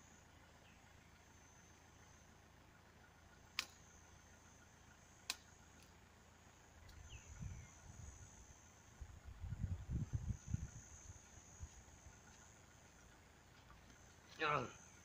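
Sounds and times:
sharp clicks: 3.5s - 4.0s, 5.2s - 6.0s
low rumbling noise: 6.7s - 15.0s.

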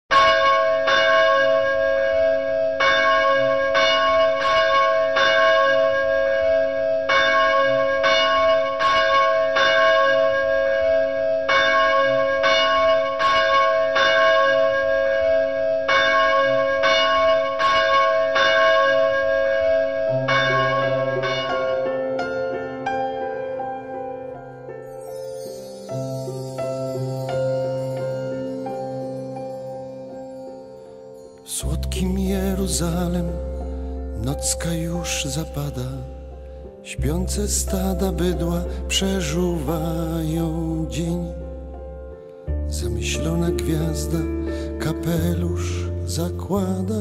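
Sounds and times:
church bells ringing: 0.1s - 42.0s
soft instrumental music: 19.7s - 47.0s.

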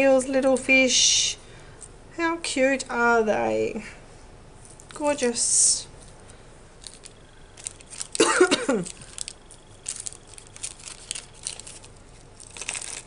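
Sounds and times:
plastic packets rustling: 6.0s - 13.0s
woman coughing: 8.2s - 9.0s.

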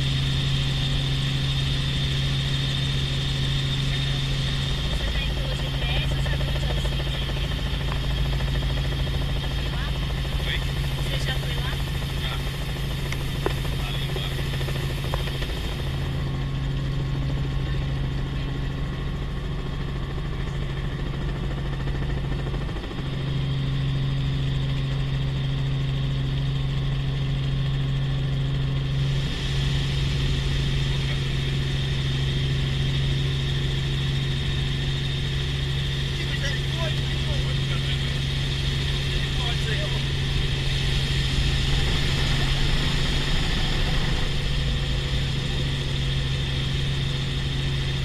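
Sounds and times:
helicopter engine and rotor droning: 0.0s - 48.0s.

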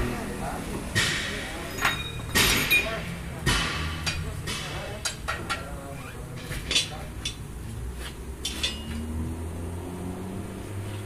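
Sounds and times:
tyre irons clinking on steel rim: 1.6s - 7.5s, 8.4s - 9.1s.

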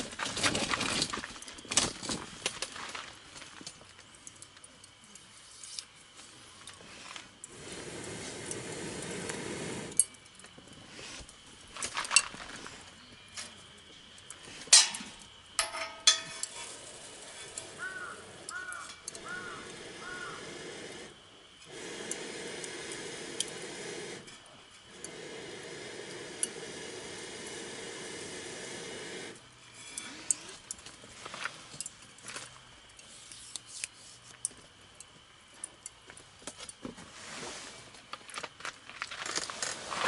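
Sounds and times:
dishes and cookware clinking: 15.6s - 16.6s.

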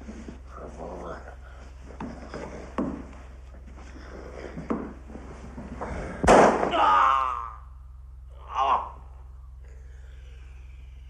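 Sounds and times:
loud gunshot: 6.2s - 6.8s
person crying out: 6.6s - 7.8s, 8.4s - 9.2s.

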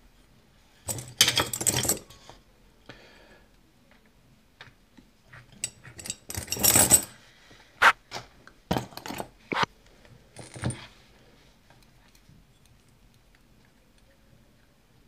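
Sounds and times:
small metal parts jingling: 5.6s - 7.2s.

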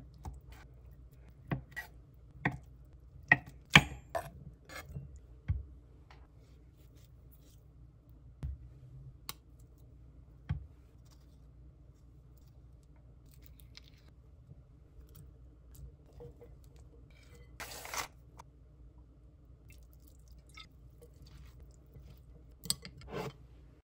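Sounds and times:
soft food squishing: 9.2s - 17.4s, 19.6s - 22.9s.

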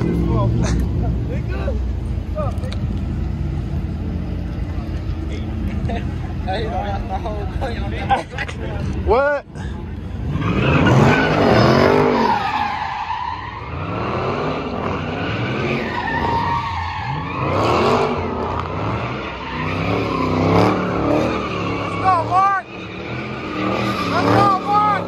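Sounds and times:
tyres squealing and skidding: 0.0s - 25.0s
car engine revving: 8.8s - 25.0s.

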